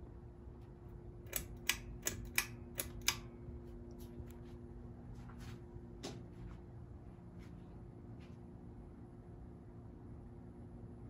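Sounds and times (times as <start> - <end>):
ceiling fan motor humming: 0.0 - 11.0
pull chain clicks: 1.3 - 3.3.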